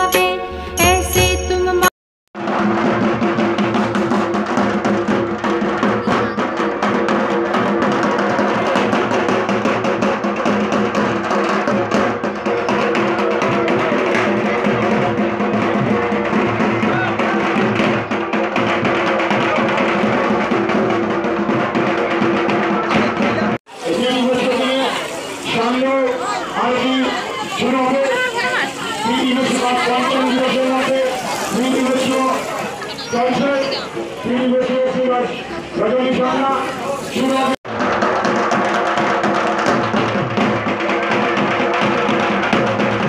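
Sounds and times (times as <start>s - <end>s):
barrel drums beating fast: 2.4s - 25.9s, 37.4s - 43.0s.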